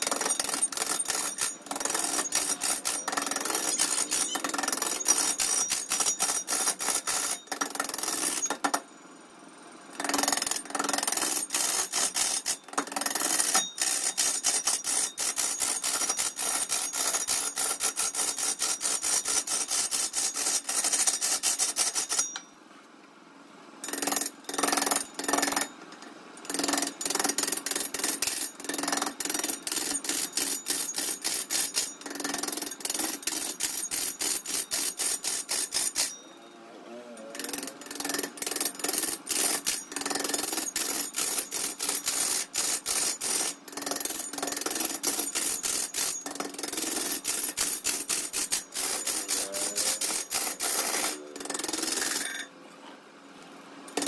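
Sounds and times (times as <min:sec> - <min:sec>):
sharp metallic tool strikes: 0:00.0 - 0:08.7, 0:47.2 - 0:51.3.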